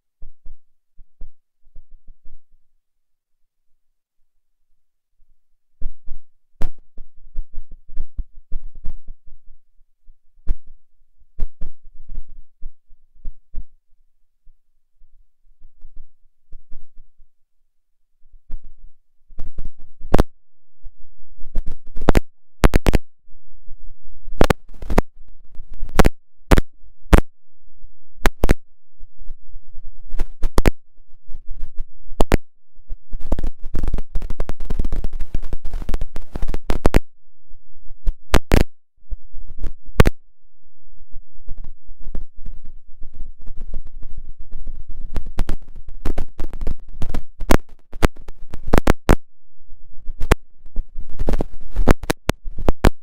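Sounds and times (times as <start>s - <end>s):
sharp clicks and crackling: 19.4s - 20.3s, 21.5s - 23.1s, 24.3s - 27.3s, 28.2s - 28.6s, 30.0s - 32.5s, 33.1s - 37.1s, 38.0s - 38.8s, 39.4s - 40.2s, 41.5s - 49.2s, 50.0s - 53.0s.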